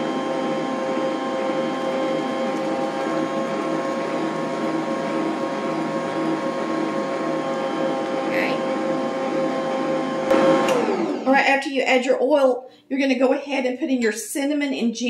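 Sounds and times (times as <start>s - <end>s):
stand mixer humming: 0.0s - 11.5s.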